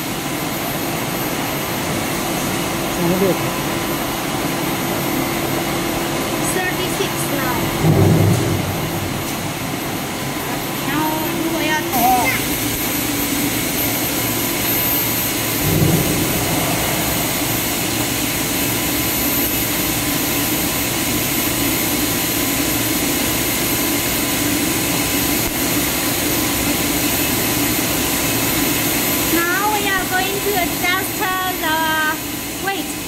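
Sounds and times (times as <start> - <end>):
blower air rushing: 0.0 - 21.3
high whine: 0.0 - 24.0
machine humming: 0.0 - 33.0.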